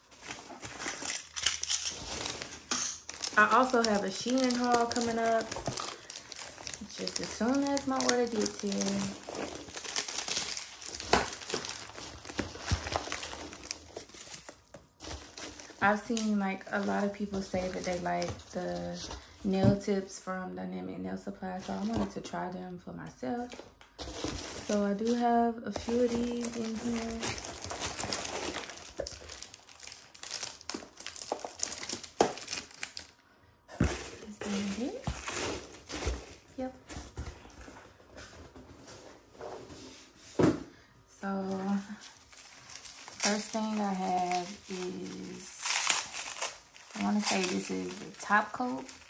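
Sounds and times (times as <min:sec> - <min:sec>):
hands rustling packing peanuts: 0:00.0 - 0:19.4, 0:24.0 - 0:33.1, 0:33.7 - 0:37.6, 0:41.4 - 0:49.0.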